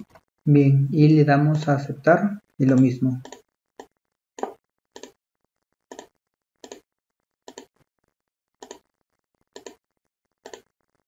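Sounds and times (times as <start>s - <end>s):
computer mouse clicking: 2.6s - 5.2s, 5.9s - 6.8s, 7.5s - 7.8s, 8.6s - 8.8s, 9.6s - 9.8s, 10.4s - 10.7s.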